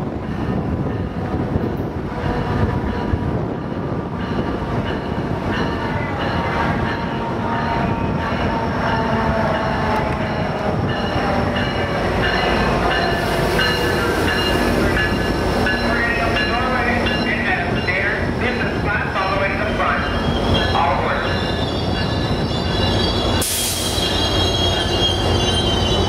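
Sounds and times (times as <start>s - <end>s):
passenger train rumbling past: 0.0s - 26.0s
high thin wheel squealing: 21.4s - 26.0s.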